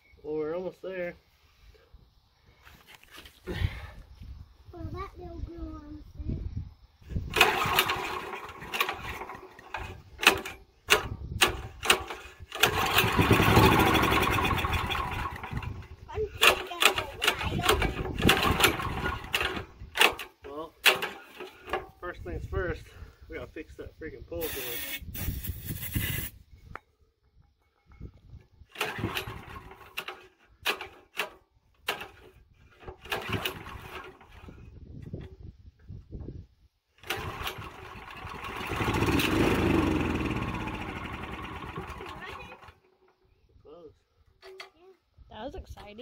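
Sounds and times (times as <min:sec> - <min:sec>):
engine sputtering: 0:07.2 - 0:22.0, 0:28.7 - 0:34.7, 0:37.0 - 0:43.3
recoil rope pulls: 0:07.3 - 0:21.8, 0:28.7 - 0:34.6, 0:37.0 - 0:42.8.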